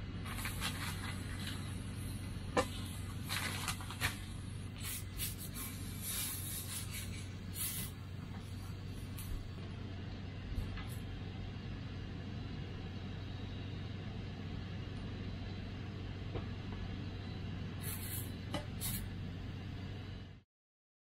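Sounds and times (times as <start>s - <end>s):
camp stove hissing: 0.2s - 9.6s, 17.8s - 19.1s.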